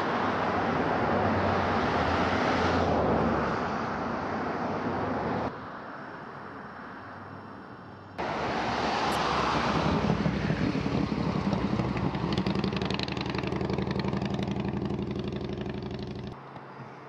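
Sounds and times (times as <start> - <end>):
engine running steadily: 8.2 - 16.4.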